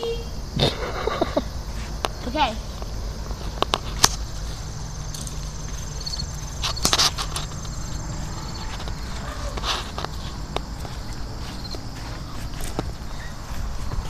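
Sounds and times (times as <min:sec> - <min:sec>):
steady low rumble: 0:00.2 - 0:14.0
sharp scuffs and clicks: 0:02.8 - 0:14.0
faint high chirps: 0:13.0 - 0:13.6.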